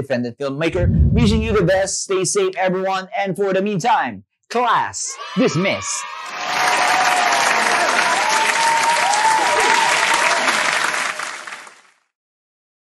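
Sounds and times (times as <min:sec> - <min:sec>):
crowd applauding and cheering: 0:06.0 - 0:11.9.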